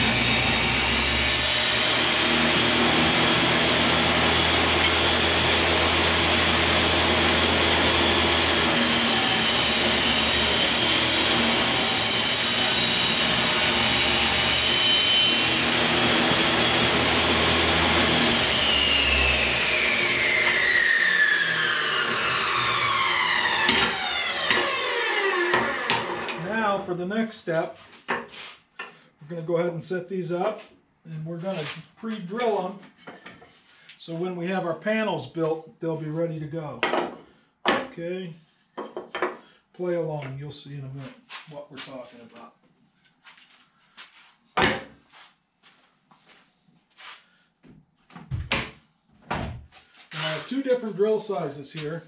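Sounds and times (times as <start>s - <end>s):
saw motor winding down: 0.0s - 26.5s, 50.1s - 50.7s
table saw ripping wood: 0.0s - 26.8s, 49.8s - 52.0s.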